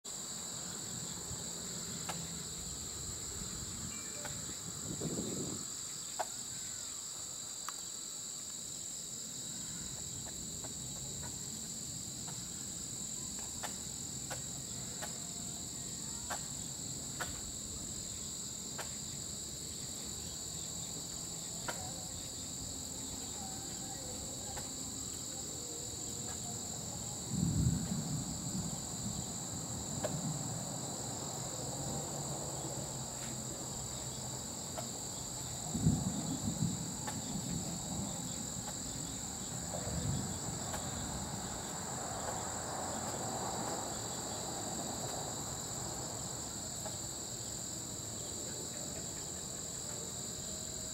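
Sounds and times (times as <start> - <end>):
crickets and insects trilling: 0.0 - 50.9.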